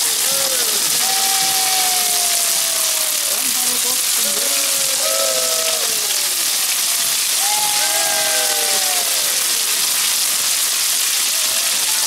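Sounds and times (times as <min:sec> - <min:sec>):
voices calling out: 0:00.0 - 0:10.3.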